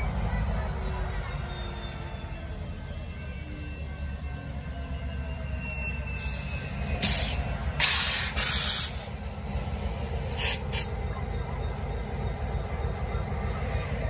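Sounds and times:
diesel locomotive idling: 0:00.0 - 0:14.0
compressed air hiss: 0:06.2 - 0:10.9.

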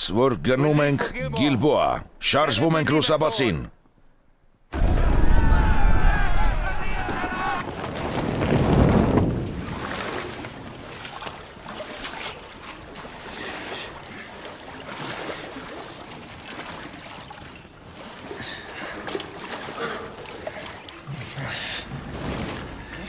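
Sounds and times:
shallow water splashing and trickling: 0:07.6 - 0:23.0.

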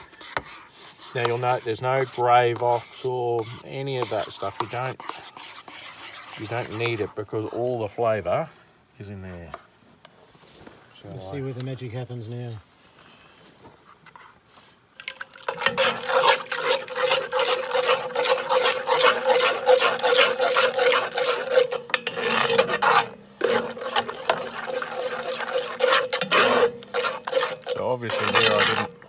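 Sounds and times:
metal utensil scraping a pot: 0:00.0 - 0:07.7, 0:15.4 - 0:29.0.

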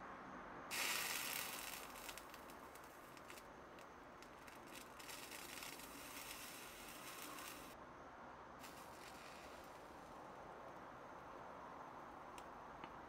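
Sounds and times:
solder flux sizzling: 0:00.7 - 0:07.8, 0:08.6 - 0:11.3.

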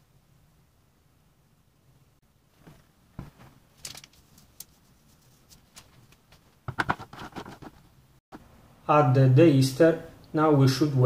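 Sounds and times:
rustling taps: 0:02.6 - 0:04.8, 0:05.5 - 0:07.9
plastic packet rustling: 0:02.6 - 0:06.4.

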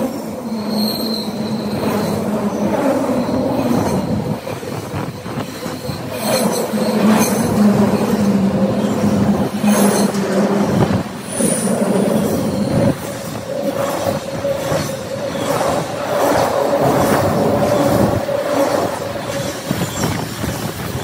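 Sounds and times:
train wheels rumbling on rail: 0:00.0 - 0:21.0
wheels clacking on rail: 0:00.0 - 0:21.0.

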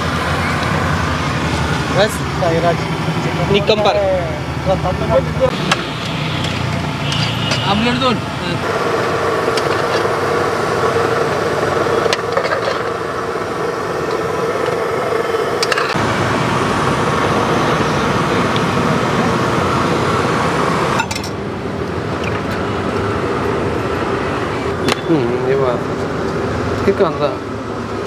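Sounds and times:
traffic: 0:00.0 - 0:28.0
metal utensils clinking on plates: 0:21.0 - 0:21.4.

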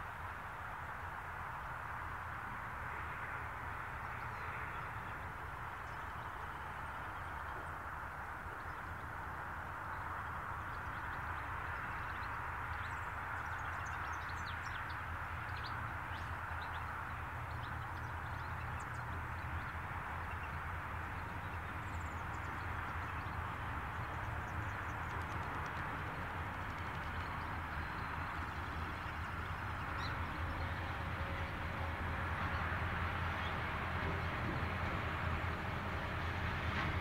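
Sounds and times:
small birds chirping: 0:09.8 - 0:31.7.

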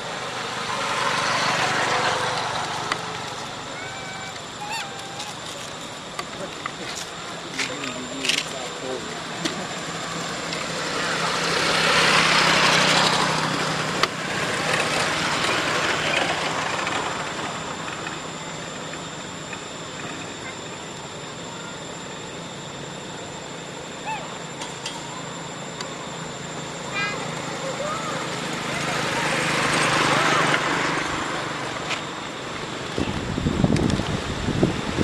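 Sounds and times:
motor vehicle passing by: 0:00.0 - 0:04.0.

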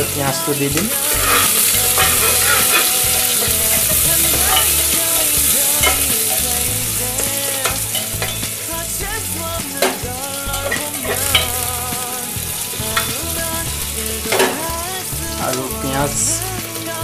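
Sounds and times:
onions sizzling in oil: 0:00.0 - 0:17.0
spoon scraping pot: 0:01.0 - 0:06.3.

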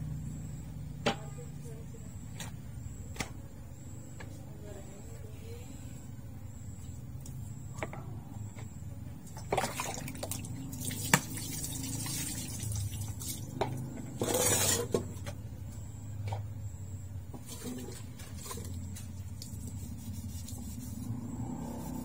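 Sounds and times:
steady low hum: 0:00.0 - 0:22.0
water splashing and running: 0:09.4 - 0:13.5.

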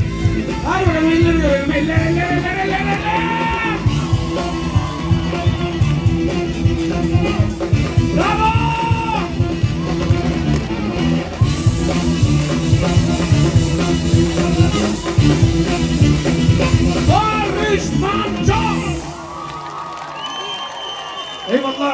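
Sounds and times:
drum kit: 0:00.0 - 0:19.2
electric guitar: 0:00.0 - 0:19.2
bass: 0:00.0 - 0:19.4.

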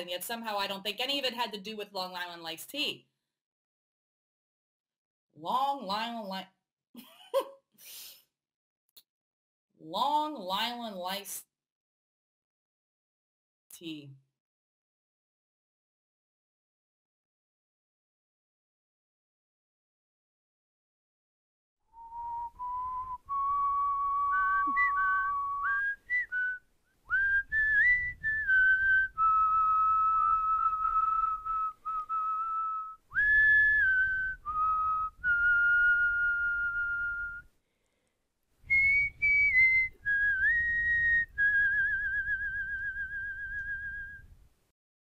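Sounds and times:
person whistling a tune: 0:22.0 - 0:37.5, 0:38.7 - 0:44.3.

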